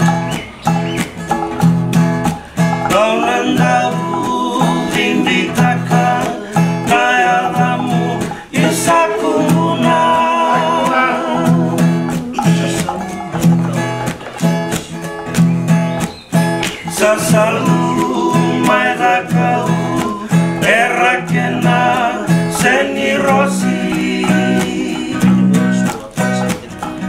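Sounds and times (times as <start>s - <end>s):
strummed acoustic guitar: 0.0s - 27.0s
men singing: 2.4s - 15.2s, 16.6s - 27.0s.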